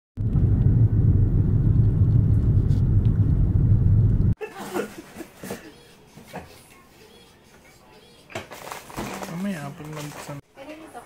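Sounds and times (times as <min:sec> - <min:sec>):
road and wind noise inside vehicle: 0:00.2 - 0:04.4.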